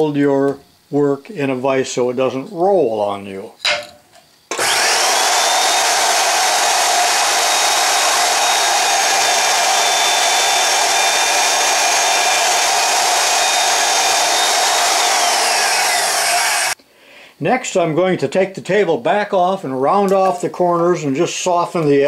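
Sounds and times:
band saw cutting metal bar: 0:04.5 - 0:16.8
band saw motor whine: 0:04.5 - 0:16.8.

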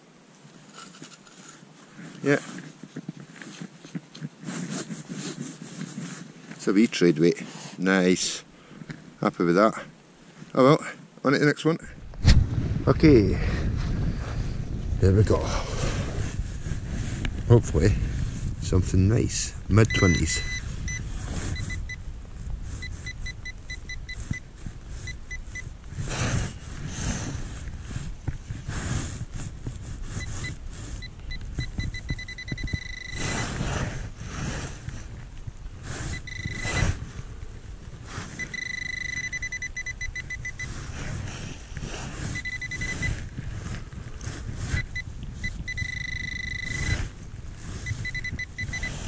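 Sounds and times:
rustling scrape: 0:00.4 - 0:08.4, 0:12.1 - 0:49.0
wind rumble on microphone: 0:11.9 - 0:49.0
low rumble: 0:12.0 - 0:17.5
metal detector probe beeping: 0:19.7 - 0:22.0, 0:22.7 - 0:25.7, 0:30.0 - 0:33.9, 0:35.9 - 0:37.2, 0:38.1 - 0:49.0.

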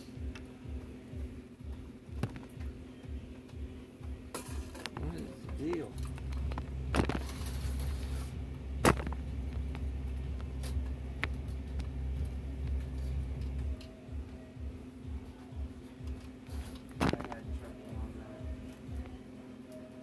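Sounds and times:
sharp clicks and knocks: 0:08.8 - 0:12.0.

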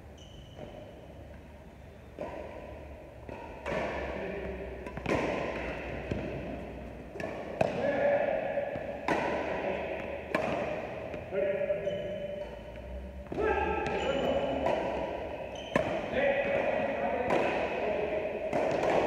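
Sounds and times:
rackets smacking shuttlecock: 0:03.2 - 0:08.0, 0:08.6 - 0:19.0
voices: 0:07.6 - 0:15.1, 0:15.9 - 0:18.3.

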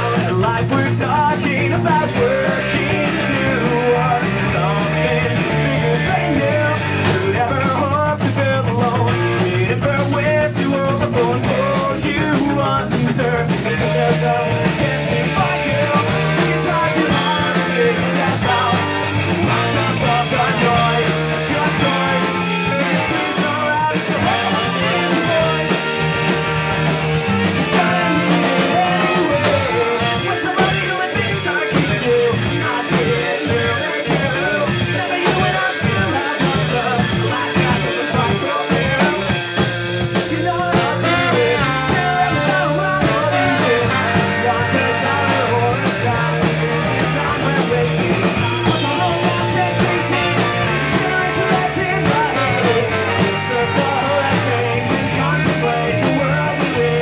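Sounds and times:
ska-punk band playing live: 0:00.0 - 0:57.0.

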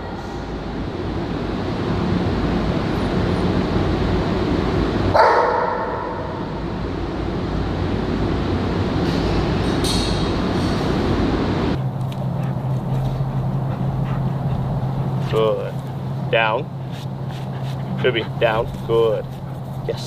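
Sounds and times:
dogs barking: 0:05.1 - 0:06.7, 0:11.8 - 0:20.0.

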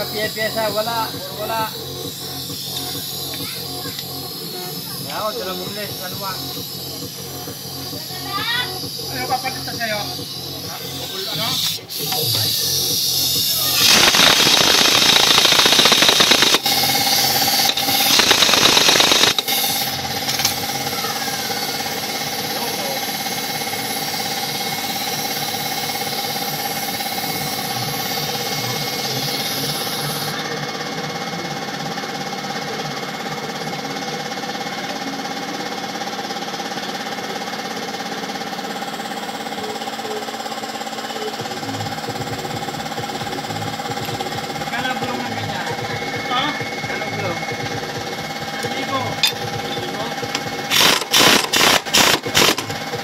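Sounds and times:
motor humming and whining: 0:00.0 - 0:53.0
compressed air blow gun hissing: 0:10.2 - 0:20.0, 0:50.7 - 0:52.6.

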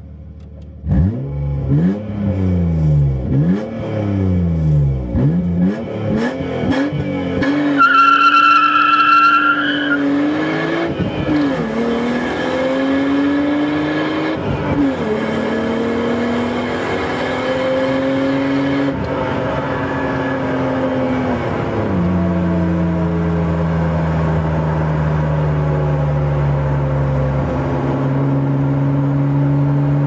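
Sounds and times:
car engine accelerating: 0:00.2 - 0:30.0
high steady squeal: 0:07.8 - 0:10.0.

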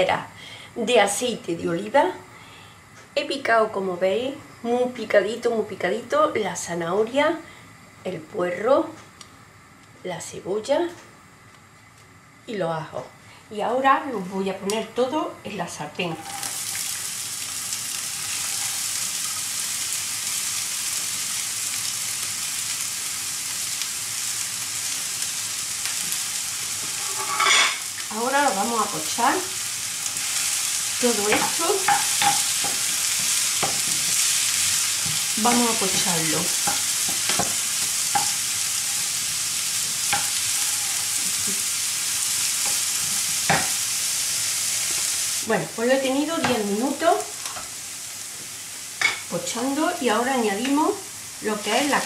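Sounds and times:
vegetables sizzling in oil: 0:00.0 - 0:52.0
wooden spoon knocking on pan: 0:31.3 - 0:32.8, 0:35.1 - 0:38.4, 0:43.5 - 0:43.8.

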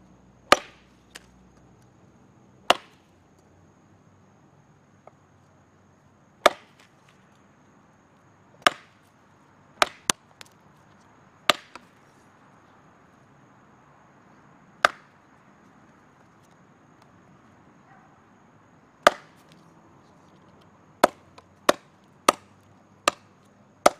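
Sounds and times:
machete chopping wooden branch: 0:00.5 - 0:01.3, 0:02.7 - 0:03.1, 0:06.4 - 0:07.0, 0:08.6 - 0:09.1, 0:09.8 - 0:10.6, 0:11.5 - 0:12.0, 0:14.8 - 0:15.1, 0:19.0 - 0:19.6, 0:21.0 - 0:23.9.

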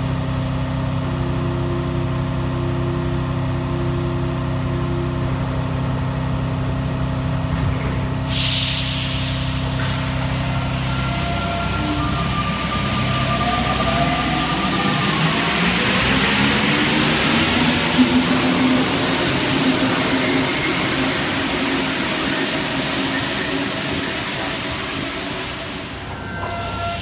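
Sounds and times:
train motor whine: 0:09.2 - 0:27.0.

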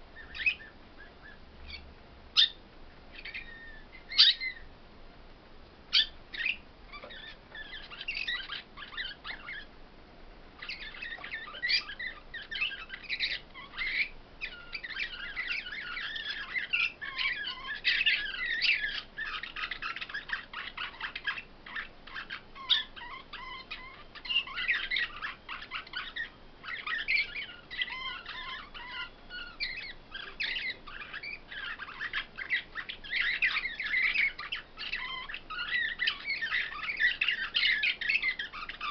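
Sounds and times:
songbirds twittering: 0:00.0 - 0:04.8, 0:05.7 - 0:09.8, 0:10.5 - 0:38.9.

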